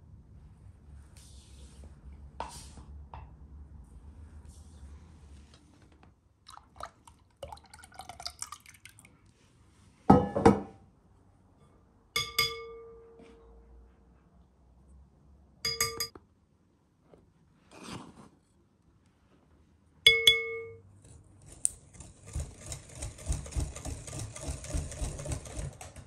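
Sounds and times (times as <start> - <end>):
glass bowl knocking: 10.1 - 10.7, 12.2 - 13.0, 15.7 - 16.1, 20.1 - 20.8
glass bowl ringing clinks: 12.2 - 13.2, 15.6 - 16.1, 20.1 - 20.8.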